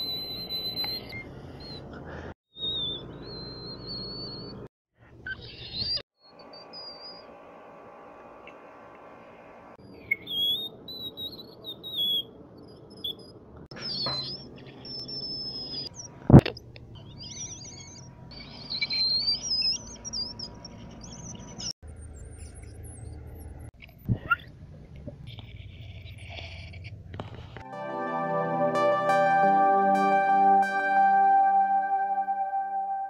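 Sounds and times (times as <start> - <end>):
high whistle-register vocal squeaks: 0.0 - 1.8, 2.5 - 4.7, 5.3 - 7.3, 10.0 - 16.1, 17.0 - 23.2.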